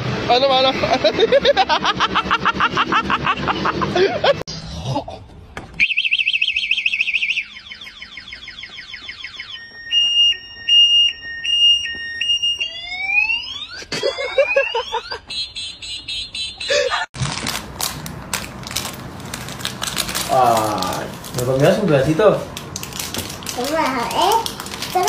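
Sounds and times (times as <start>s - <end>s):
man laughing: 0.8s - 5.3s, 13.8s - 15.3s, 16.6s - 17.1s
electronic alarm siren: 5.8s - 17.1s
man talking: 20.3s - 22.5s.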